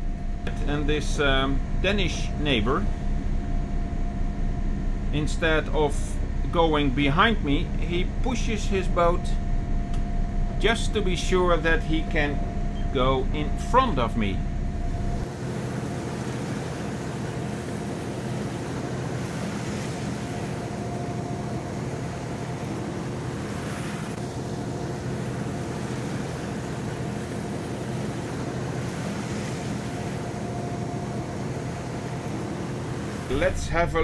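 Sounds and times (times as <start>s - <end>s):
boat engines droning: 0.0s - 34.0s
wind: 0.0s - 34.0s
water rushing: 15.0s - 34.0s.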